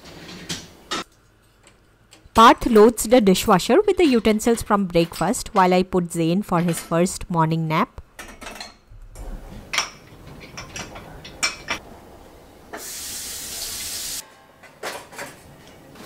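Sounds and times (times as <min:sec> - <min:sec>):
dishes and utensils clinking: 0:08.2 - 0:11.8.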